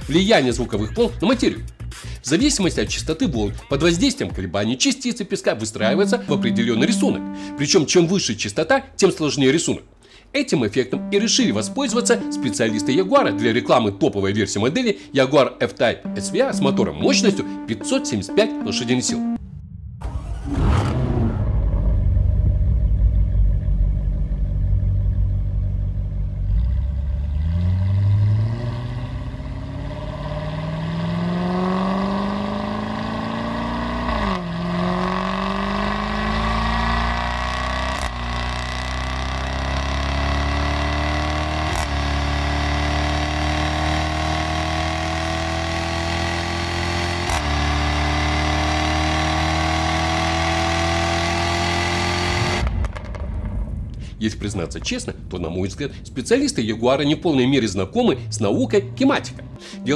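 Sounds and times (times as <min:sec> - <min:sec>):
car engine accelerating: 0:05.8 - 0:07.7, 0:11.0 - 0:14.0, 0:16.0 - 0:53.9, 0:57.5 - 0:59.9.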